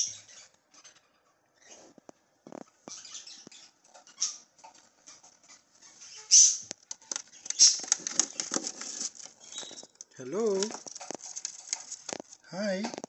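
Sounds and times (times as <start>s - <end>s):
baby budgies calling: 0.0s - 1.0s, 2.9s - 9.8s
scratchy clicks on plywood floor: 6.8s - 9.8s.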